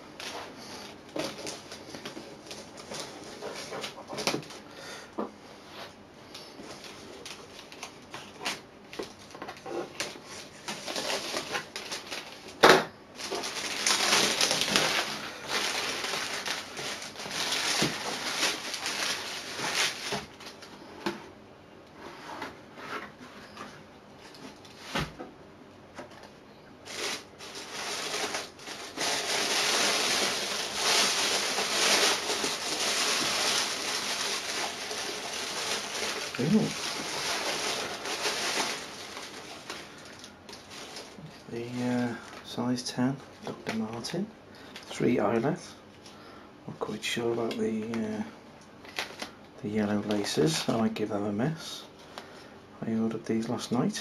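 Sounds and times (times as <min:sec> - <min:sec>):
plastic and paper rustling: 0:00.0 - 0:04.7, 0:05.7 - 0:21.2, 0:26.0 - 0:45.8, 0:46.8 - 0:54.0.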